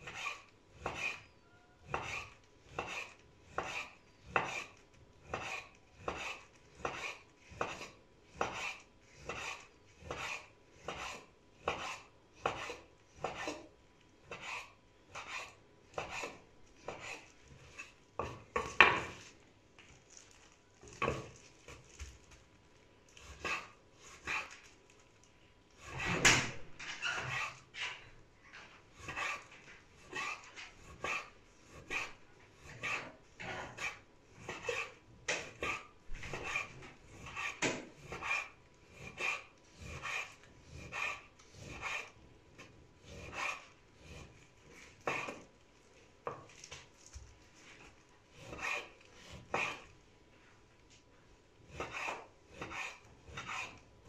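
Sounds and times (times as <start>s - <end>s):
knife slicing meat on wooden board: 1.9s - 13.6s, 14.2s - 19.2s, 29.0s - 45.5s, 47.8s - 49.9s, 51.7s - 53.8s.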